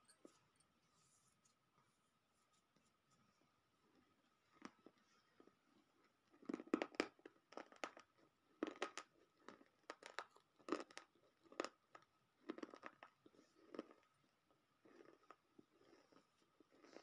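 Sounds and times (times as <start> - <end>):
crunching and chewing: 3.8 - 17.0.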